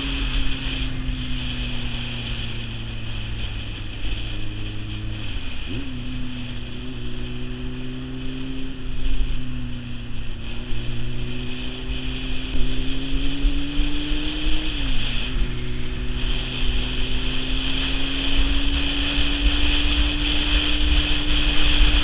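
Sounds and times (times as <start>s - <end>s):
motorcycle engine accelerating: 0.0s - 22.0s
wind on microphone: 0.0s - 22.0s.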